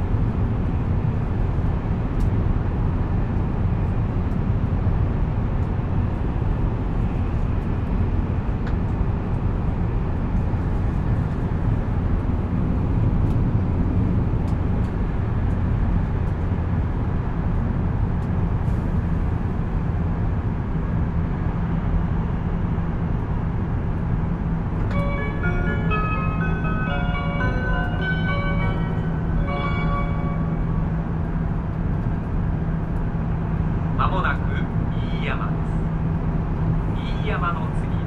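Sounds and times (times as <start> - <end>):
train wheels rumbling: 23.2 - 38.0
onboard chime tune: 24.9 - 30.7.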